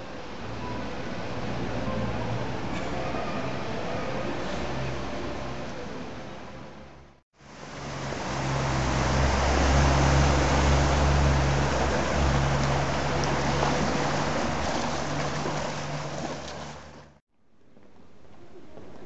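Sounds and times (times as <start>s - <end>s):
motorboat engine humming: 0.0s - 17.2s
propeller churning water: 0.0s - 17.2s.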